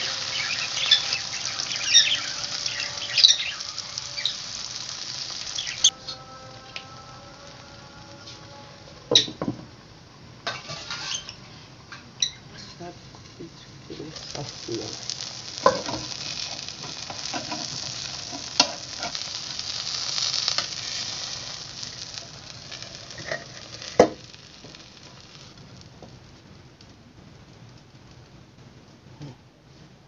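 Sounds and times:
omelette sizzling in frying pan: 0:00.0 - 0:29.2.

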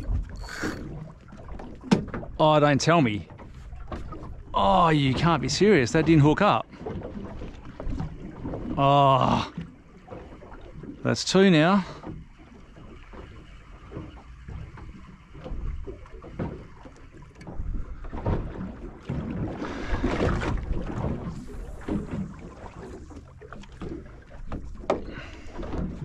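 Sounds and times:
water lapping against boat hull: 0:00.0 - 0:26.0.

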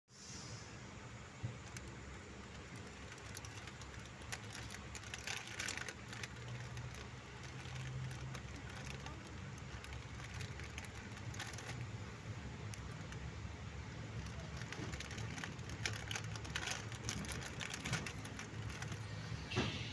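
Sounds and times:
brief hiss: 0:00.1 - 0:01.5, 0:19.3 - 0:19.9
train rumbling: 0:00.7 - 0:19.9
light clicks and rattles: 0:01.5 - 0:19.3.

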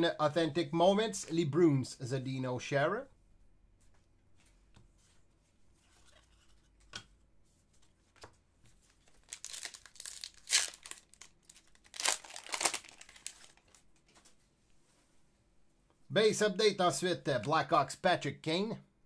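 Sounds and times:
wrapper crinkling and tearing: 0:09.0 - 0:13.8.

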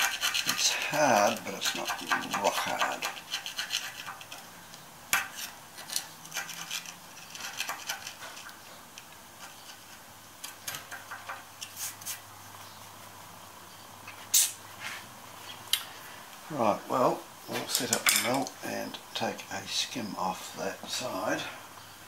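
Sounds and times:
steel pick scraping glue: 0:00.0 - 0:04.4, 0:05.2 - 0:08.6.

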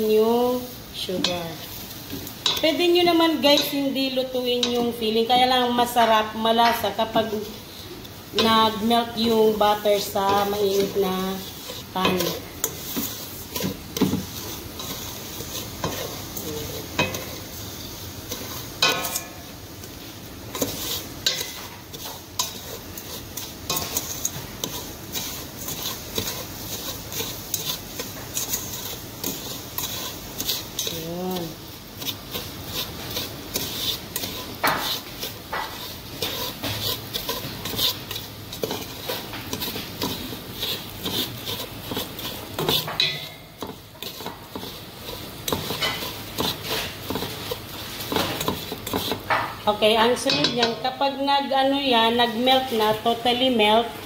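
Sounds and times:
butter sizzling: 0:00.0 - 0:54.0
wooden spatula scraping metal pot: 0:08.4 - 0:19.4, 0:20.5 - 0:51.0.

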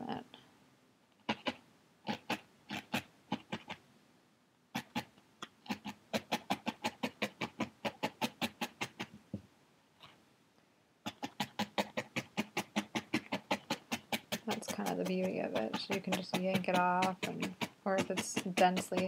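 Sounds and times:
felting needle stabbing foam pad: 0:01.2 - 0:03.8, 0:04.8 - 0:09.4, 0:11.1 - 0:19.0.

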